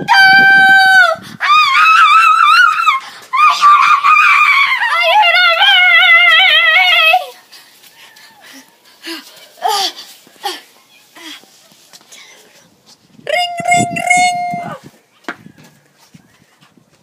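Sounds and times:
girl screaming: 0.0 - 7.3, 13.3 - 14.8.

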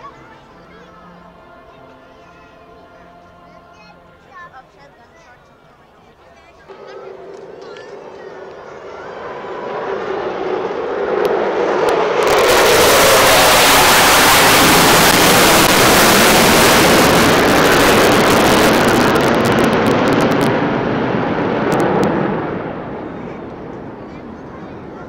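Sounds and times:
jets roaring overhead: 6.7 - 25.0.

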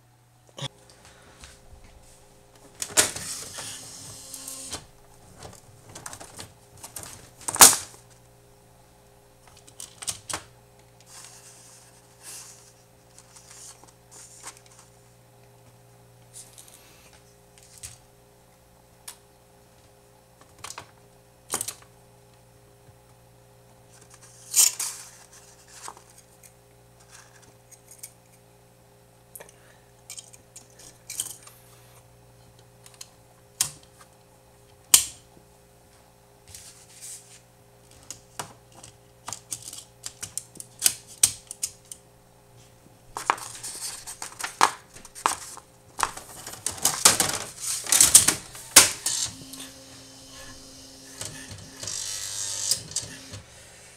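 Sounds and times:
electronic typewriter clicking: 46.7 - 49.7, 51.0 - 53.4.

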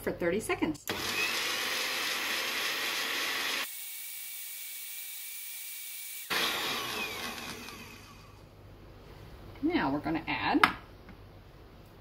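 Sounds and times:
blender motor running: 0.9 - 8.4.

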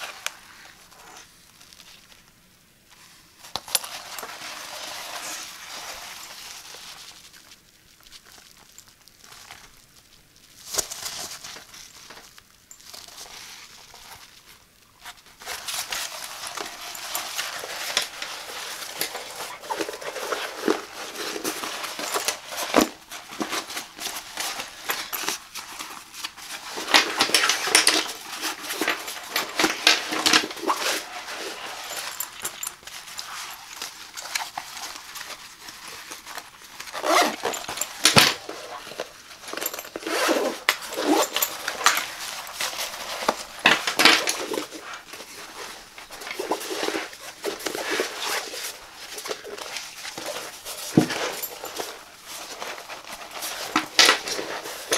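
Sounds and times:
fabric rustling and scratching: 2.9 - 54.9
bag shifted on table: 15.4 - 35.0, 36.1 - 54.9.

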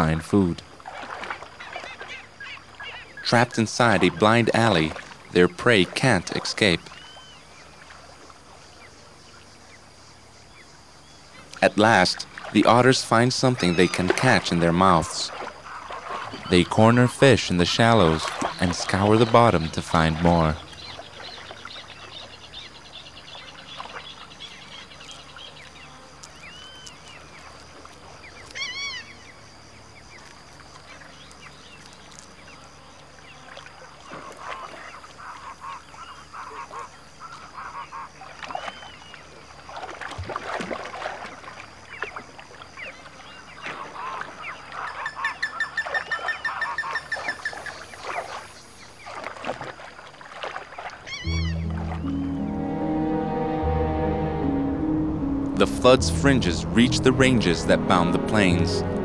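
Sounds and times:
faint steady high tone: 51.3 - 59.0.

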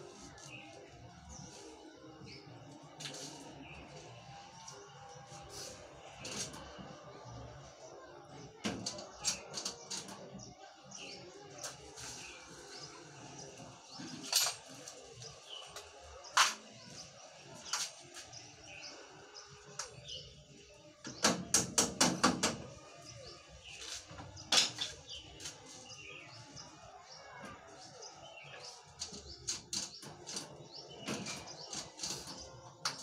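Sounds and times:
metal knocks on sheet steel: 21.1 - 22.7.

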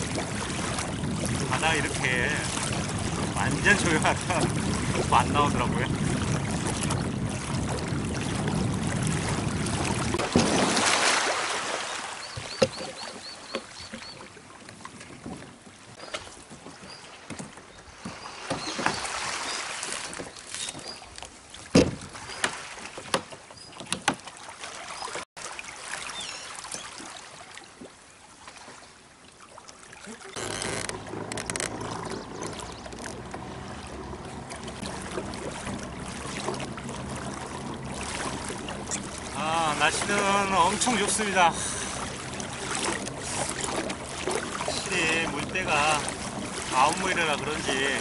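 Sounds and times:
water noise over sea: 0.0 - 48.0
wind: 0.0 - 48.0.

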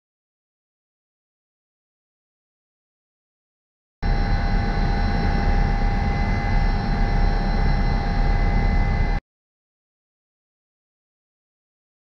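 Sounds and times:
helicopter rumble with high whine: 4.0 - 9.2.

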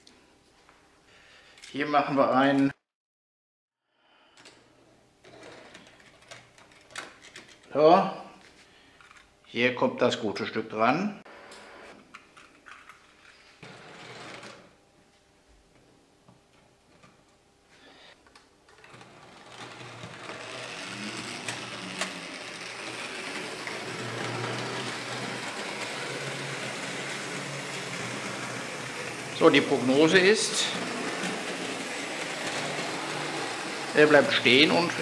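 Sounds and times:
model train whirring on track: 18.9 - 35.0.

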